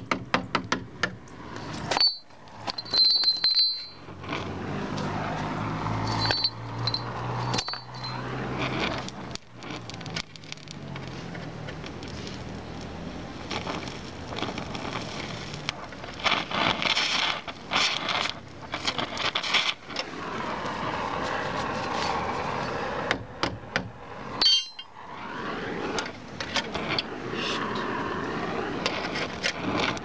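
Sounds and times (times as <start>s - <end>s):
torch flame hissing: 12.0s - 23.3s, 23.9s - 30.0s.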